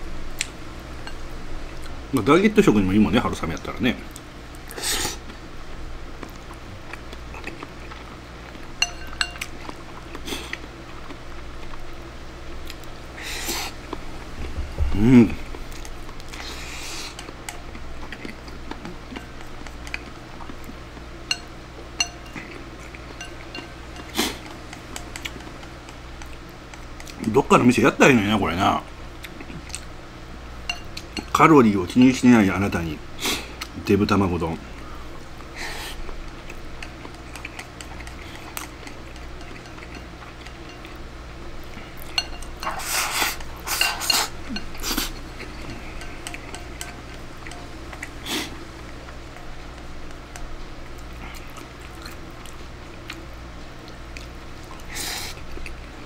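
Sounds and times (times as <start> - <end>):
chopsticks clinking on ceramic bowl: 8.8 - 9.7, 21.3 - 25.6, 30.6 - 32.2, 36.8 - 41.0, 42.0 - 42.9, 43.6 - 47.8
chopsticks scraping ceramic bowl: 42.1 - 47.7.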